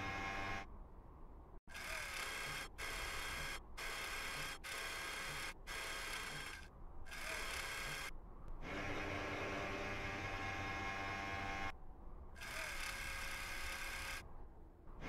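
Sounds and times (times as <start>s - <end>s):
whirring motor: 1.7s - 11.7s, 12.4s - 14.2s.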